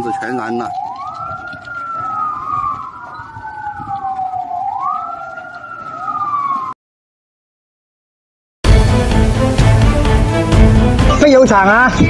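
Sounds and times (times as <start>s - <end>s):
emergency sirens wailing: 0.0s - 6.8s.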